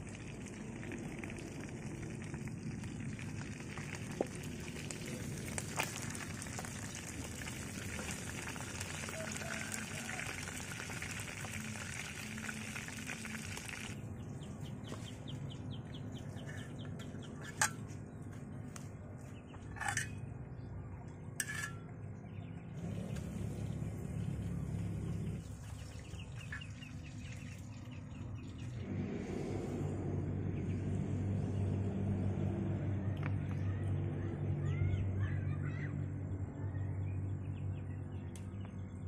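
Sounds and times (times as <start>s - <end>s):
low rumble: 22.3s - 26.4s, 28.1s - 34.6s.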